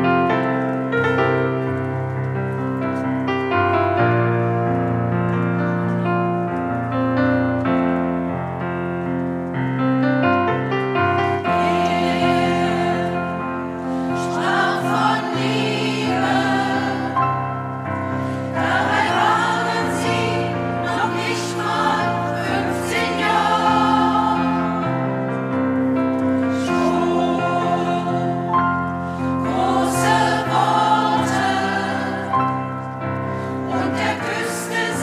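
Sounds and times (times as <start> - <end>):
digital piano: 0.0 - 35.0
women's choir singing: 11.2 - 35.0.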